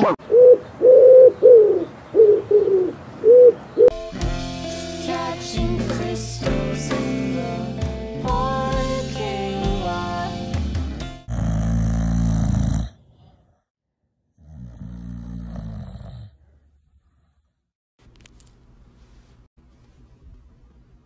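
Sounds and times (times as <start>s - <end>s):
dog snoring: 11.3s - 13.6s, 14.4s - 17.4s.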